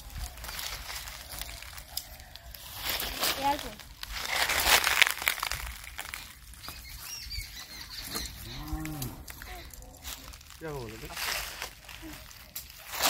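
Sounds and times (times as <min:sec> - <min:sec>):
cow mooing: 0:08.4 - 0:09.4.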